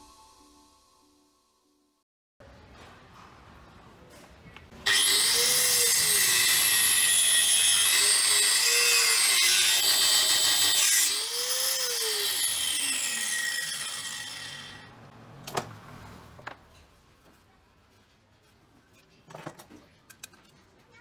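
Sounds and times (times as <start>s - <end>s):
angle grinder cutting wood: 4.9s - 14.9s.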